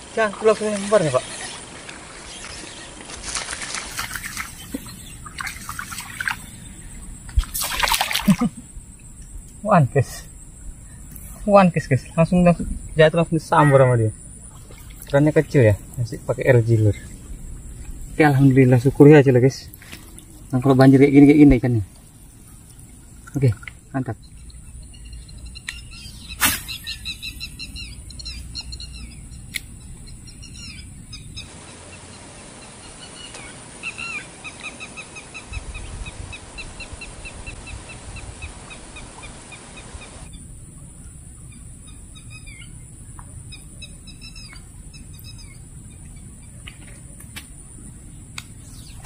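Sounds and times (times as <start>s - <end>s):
birds chirping: 0.0s - 49.0s
fishing rod swish: 26.4s - 26.9s.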